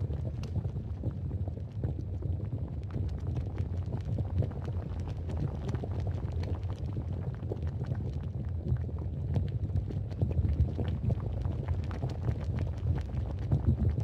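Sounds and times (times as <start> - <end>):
dense crackling and popping: 0.0 - 14.0.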